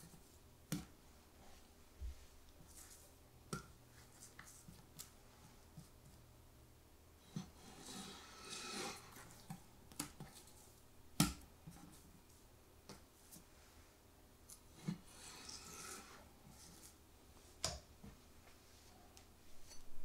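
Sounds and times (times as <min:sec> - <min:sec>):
tool scraping: 0:07.3 - 0:09.5, 0:14.8 - 0:17.0.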